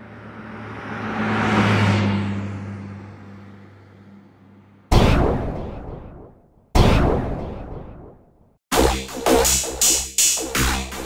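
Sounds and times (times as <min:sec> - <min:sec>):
electronic whoosh drone: 0:04.9 - 0:11.0
loud hit: 0:04.9 - 0:11.0.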